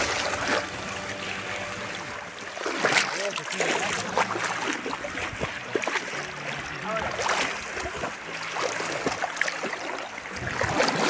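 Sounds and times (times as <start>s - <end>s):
seawater lapping and splashing: 0.0s - 11.0s
small splashes and clicks: 2.5s - 11.0s.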